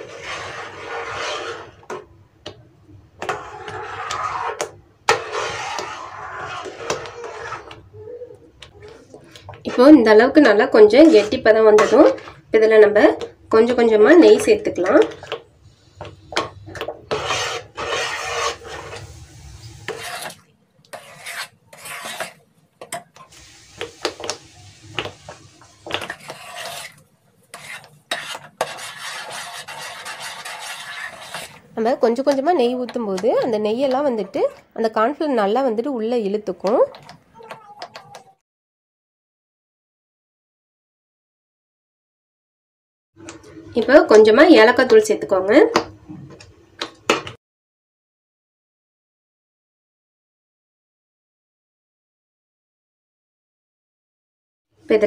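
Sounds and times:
metal spoon scraping a pan: 0.0s - 2.1s, 3.2s - 7.9s, 8.6s - 33.3s.

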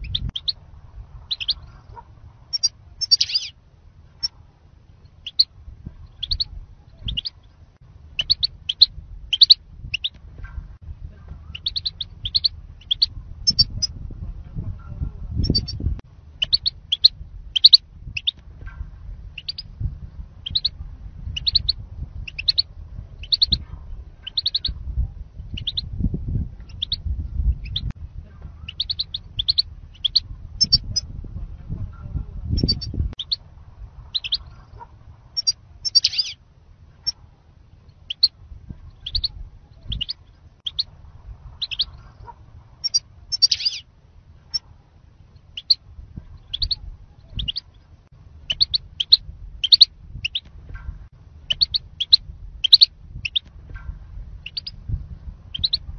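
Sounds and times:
wind rumble on microphone: 0.0s - 55.9s
goldfinch high chirps: 1.3s - 1.7s, 2.5s - 3.5s, 6.1s - 7.4s, 8.2s - 10.2s, 11.5s - 13.9s, 16.4s - 18.4s, 19.4s - 19.7s, 20.4s - 20.7s, 21.3s - 22.6s, 23.2s - 23.6s, 24.2s - 24.8s, 25.5s - 25.8s, 28.7s - 31.0s, 34.1s - 34.6s, 35.4s - 36.4s, 39.0s - 40.9s, 41.6s - 42.0s, 42.8s - 43.8s, 45.6s - 45.8s, 46.4s - 47.8s, 48.5s - 50.5s, 51.5s - 53.5s, 54.4s - 54.8s, 55.5s - 55.8s.

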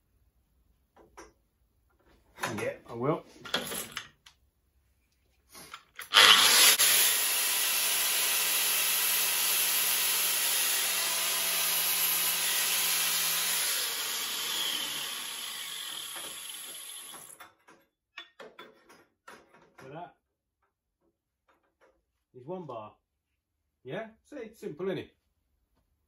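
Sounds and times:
electric power tool running: 6.0s - 17.4s.

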